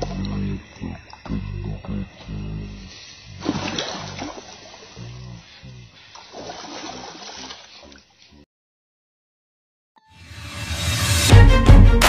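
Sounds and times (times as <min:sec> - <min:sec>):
fish splashing in water: 0:03.1 - 0:05.0, 0:06.1 - 0:08.2
background music: 0:10.0 - 0:12.0.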